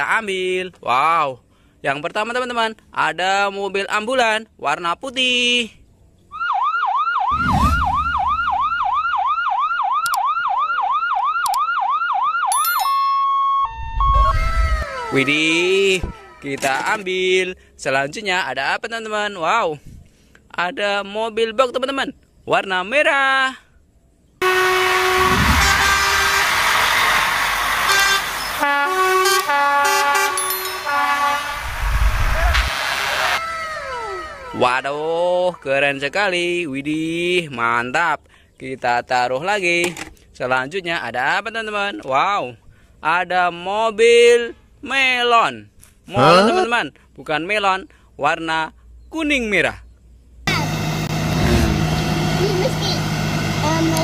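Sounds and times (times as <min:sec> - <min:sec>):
electronic siren yelping: 0:06.3 - 0:16.6, 0:29.9 - 0:35.6
road noise: 0:13.7 - 0:18.0, 0:23.8 - 0:36.6, 0:48.8 - 0:54.0
lorry engine: 0:24.4 - 0:32.8, 0:50.5 - 0:54.0
truck air horn blasts: 0:24.4 - 0:34.5.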